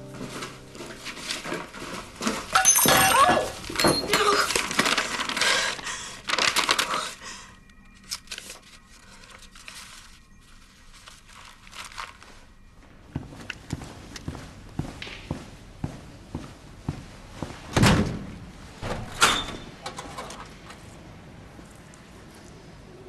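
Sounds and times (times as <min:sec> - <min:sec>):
paper packing crumpling and tearing: 0:00.2 - 0:12.7.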